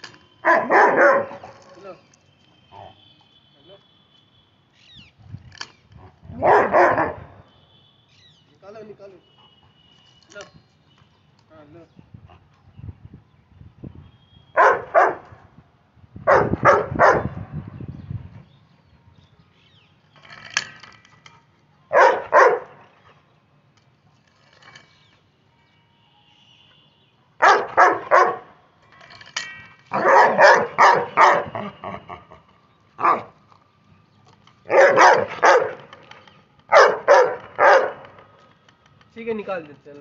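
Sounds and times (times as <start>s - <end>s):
dog barking: 0.5s - 1.6s, 6.3s - 7.4s, 14.6s - 15.3s, 16.3s - 17.3s, 21.9s - 22.8s, 27.4s - 28.5s, 29.9s - 31.6s, 33.0s - 33.3s, 34.7s - 35.9s, 36.7s - 38.1s.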